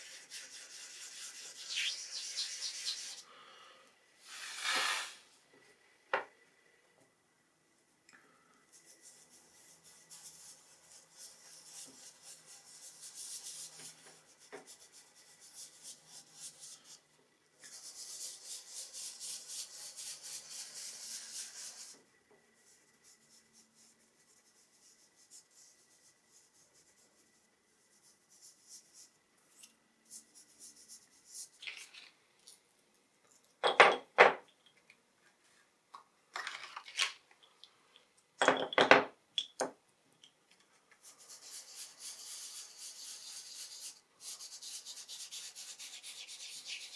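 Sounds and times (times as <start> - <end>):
fingers rubbing pastel on paper: 8.7 - 17.0, 41.0 - 46.9.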